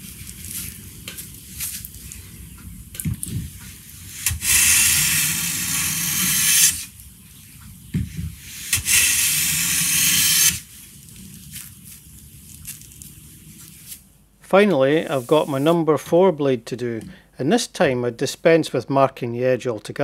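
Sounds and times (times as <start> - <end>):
hand plane shaving hiss: 4.1 - 6.9.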